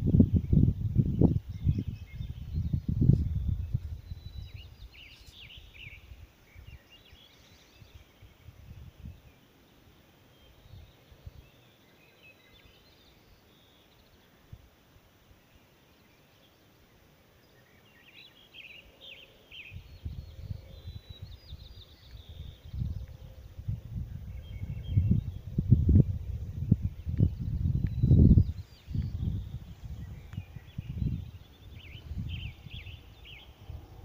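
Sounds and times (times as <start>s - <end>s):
low rumble on microphone: 0.0s - 6.8s, 19.7s - 34.0s
birds chirping: 0.0s - 34.0s.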